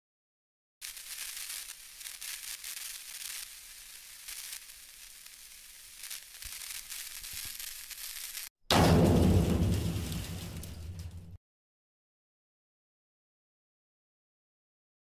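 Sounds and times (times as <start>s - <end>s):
crackling static hiss: 0.8s - 8.5s.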